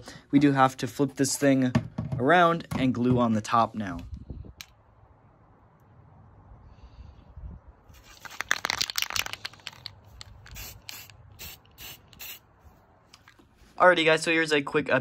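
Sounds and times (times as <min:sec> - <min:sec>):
spray can hissing: 0:08.0 - 0:12.5.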